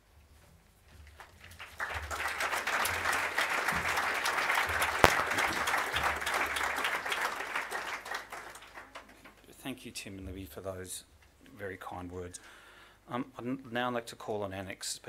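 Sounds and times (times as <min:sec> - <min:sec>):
audience applauding: 0:01.6 - 0:09.1
sharp crack: 0:05.0 - 0:05.6.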